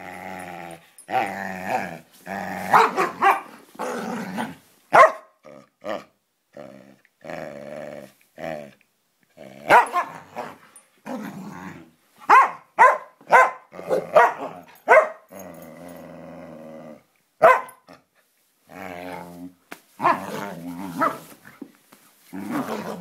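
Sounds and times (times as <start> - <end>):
dogs growling: 0.0 - 3.2, 3.8 - 4.6, 9.4 - 11.9, 13.7 - 17.1, 22.4 - 23.0
dogs barking: 2.7 - 3.5, 4.9 - 5.3, 9.7 - 10.2, 12.3 - 15.2, 17.4 - 17.8.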